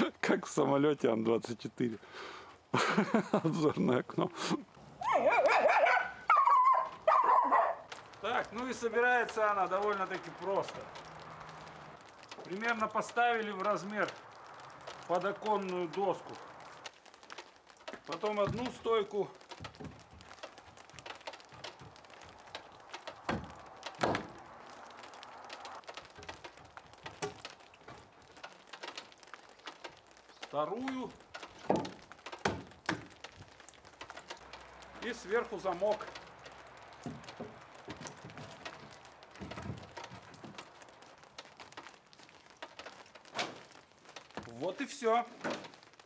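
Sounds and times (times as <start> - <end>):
wood-on-wood clicks and taps: 7.9 - 44.6, 45.3 - 46.0
wooden knocks: 16.8 - 35.2, 35.9 - 44.5
heavy wooden thud: 23.2 - 24.4, 37.0 - 40.6.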